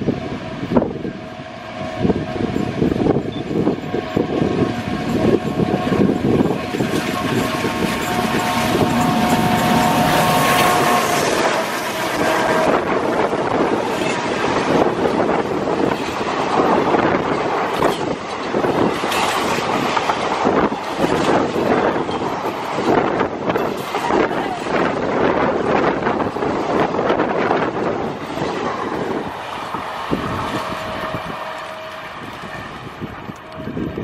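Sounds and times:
diesel locomotive engine chugging: 0.0 - 34.0
steady tone: 0.5 - 14.6
train wheels clattering over rails: 2.0 - 33.9.

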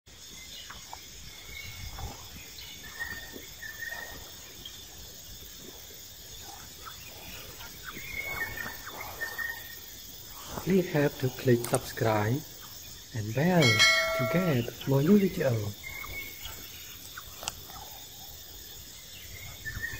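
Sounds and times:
insects droning: 0.1 - 19.9
short high chirps: 13.6 - 14.7.

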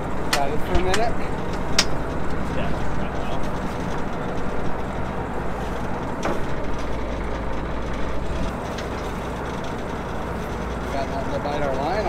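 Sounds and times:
boat engine droning: 0.0 - 12.0.

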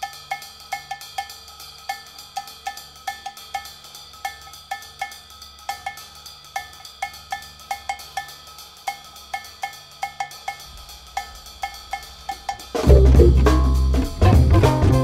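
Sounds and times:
ringing pitched strikes: 12.8 - 14.1
low bass line: 12.9 - 14.9.

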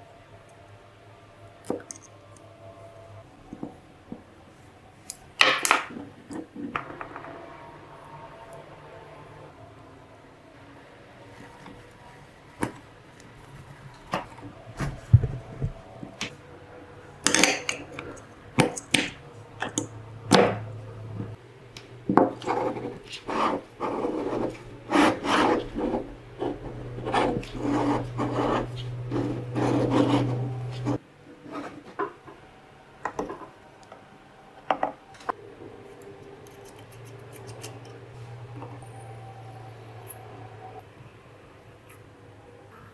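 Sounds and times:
rubbing and scraping parts: 22.2 - 32.2.

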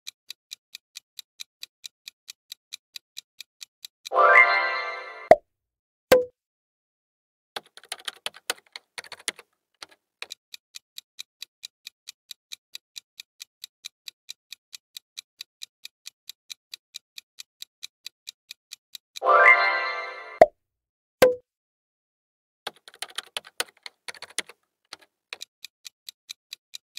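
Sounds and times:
irregular clicks: 0.0 - 4.2, 7.6 - 19.3, 22.7 - 26.9
clock ticking: 0.0 - 4.6, 7.6 - 19.8, 22.7 - 26.9.

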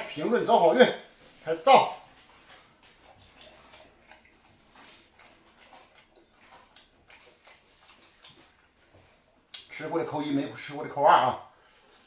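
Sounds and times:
man chewing with wet mouth clicks: 2.4 - 9.8.

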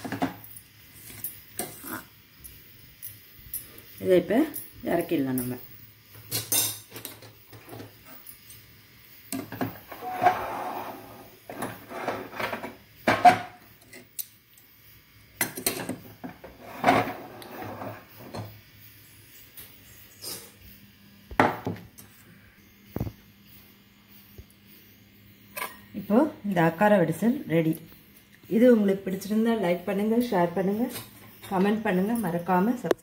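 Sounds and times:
metal utensil scraping a metal pot: 9.9 - 14.0.

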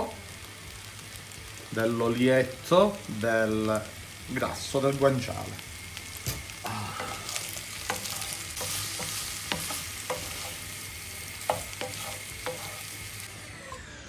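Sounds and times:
food sizzling in a frying pan: 0.0 - 13.7
spatula knocking and scraping a pan: 7.0 - 10.7, 11.4 - 13.0.

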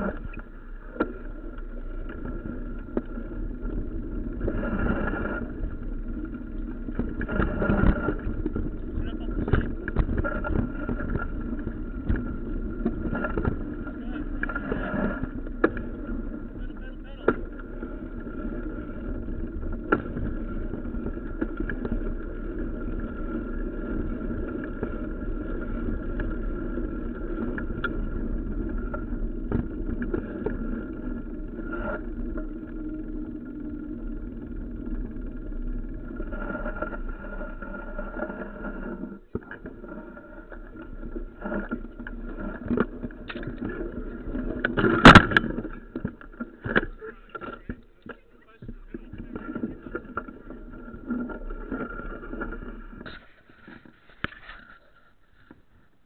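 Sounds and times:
bike knocking over bumps: 6.9 - 14.1.

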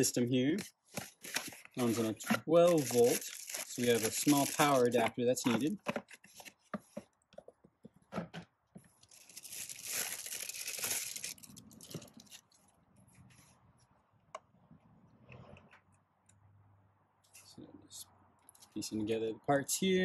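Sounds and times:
plastic wrap crinkling and tearing: 0.0 - 5.8, 9.0 - 12.6
cardboard box rustling: 0.9 - 7.0.

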